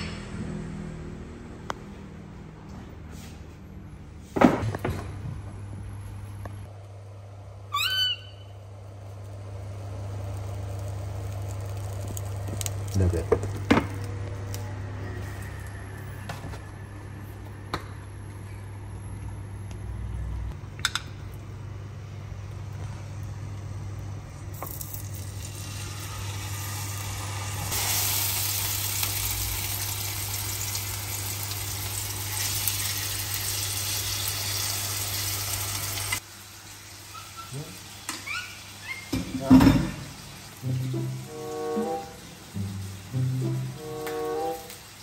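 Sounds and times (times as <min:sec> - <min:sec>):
steak sizzling in oil: 0:24.8 - 0:37.1.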